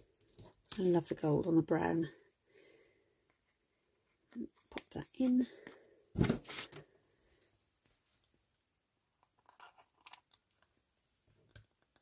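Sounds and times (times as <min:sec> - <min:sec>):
paper rustling: 0:06.2 - 0:06.8.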